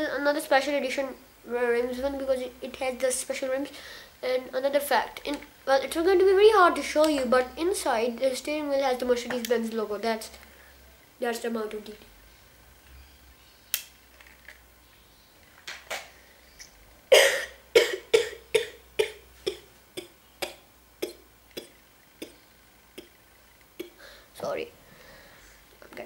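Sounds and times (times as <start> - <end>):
boy coughing: 17.1 - 22.4.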